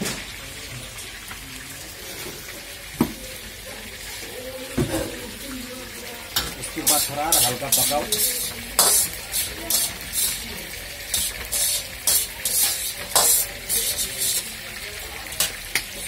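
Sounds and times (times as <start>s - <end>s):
spatula scraping a wok: 6.7s - 14.7s.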